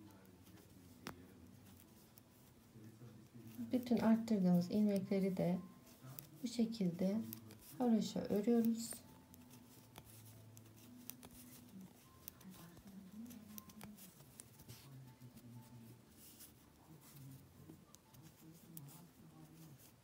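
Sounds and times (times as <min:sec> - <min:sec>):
knitting needles clicking: 0:07.2 - 0:14.9.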